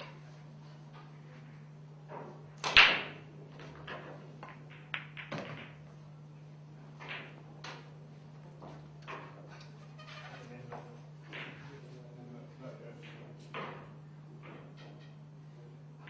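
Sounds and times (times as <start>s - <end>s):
cue striking ball: 2.0s - 6.0s, 7.0s - 8.0s
pool balls clicking together: 2.1s - 6.0s.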